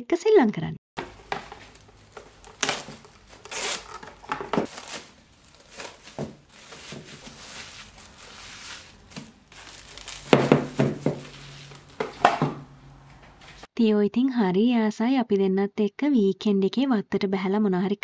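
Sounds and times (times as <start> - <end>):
rustling and scraping: 1.0 - 13.7.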